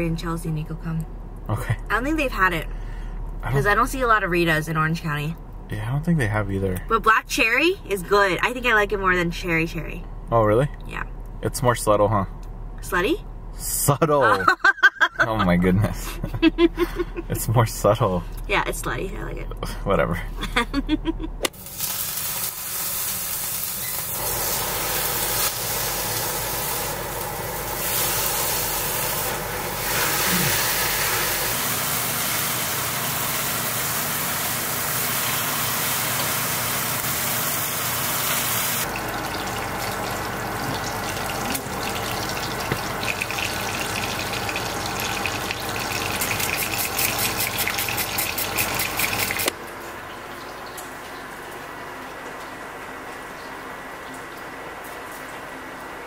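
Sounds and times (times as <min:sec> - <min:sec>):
hissing gas stove cooking: 0:21.4 - 0:56.0.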